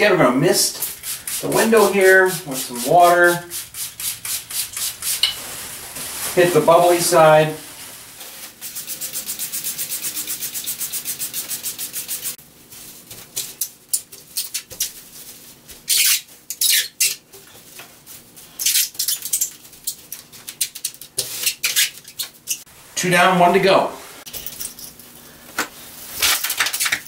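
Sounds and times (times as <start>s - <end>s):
spray bottle spritzing: 3.2s - 5.4s, 8.6s - 12.4s
bubble wrap crinkling: 3.6s - 9.2s, 14.2s - 17.0s, 25.8s - 27.0s.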